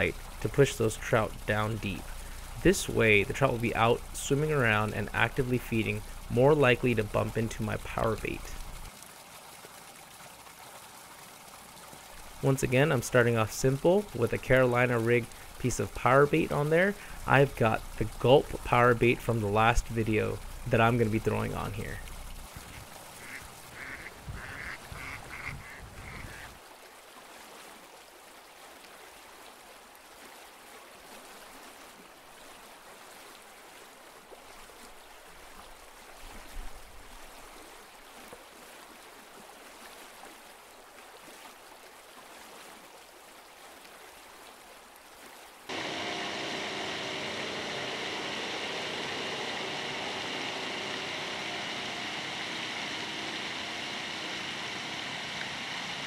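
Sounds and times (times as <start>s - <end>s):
constant hum: 0.0s - 8.9s, 12.1s - 22.8s, 45.7s - 56.0s
fountain water splashing: 0.0s - 24.3s, 45.6s - 56.0s
ducks quacking: 23.2s - 26.6s.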